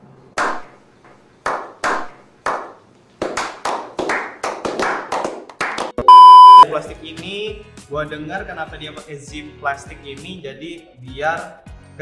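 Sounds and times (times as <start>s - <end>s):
people clapping together: 0.4s - 0.7s, 1.4s - 6.0s
single hand claps: 1.4s - 6.0s.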